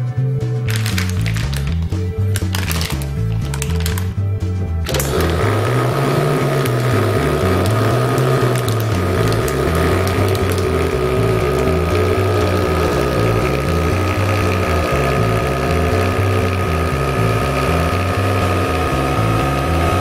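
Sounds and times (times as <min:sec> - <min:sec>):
vacuum sealer pump running: 0:04.8 - 0:20.0.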